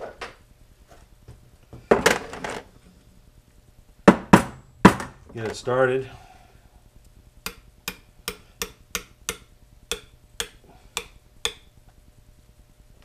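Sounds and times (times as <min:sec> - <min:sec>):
hammer tapping metal pin: 0:07.4 - 0:11.7.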